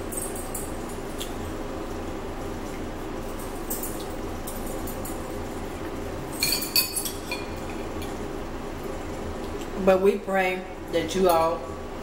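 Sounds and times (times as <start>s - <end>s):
steady low hum: 0.0s - 12.0s
spoons clinking on ceramic bowls: 6.4s - 7.5s.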